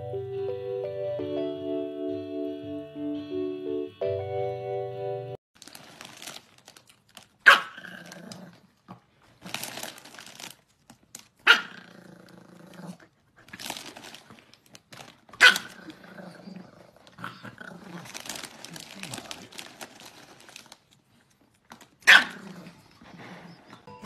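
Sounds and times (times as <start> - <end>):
foil snack bag crinkling: 5.6 - 11.4, 13.4 - 22.6
small dog barking and crying: 7.4 - 7.9, 11.4 - 11.8, 15.4 - 15.8, 22.0 - 22.5.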